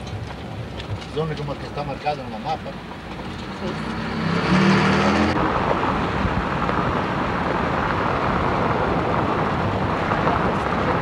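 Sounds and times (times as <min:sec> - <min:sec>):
car road noise: 0:00.0 - 0:11.0
wind noise: 0:03.2 - 0:11.0.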